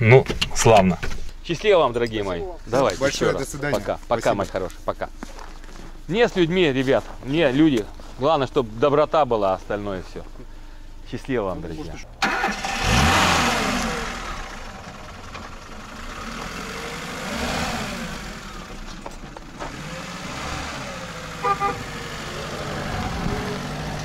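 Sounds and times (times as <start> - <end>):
car engine revving: 12.0 - 24.0.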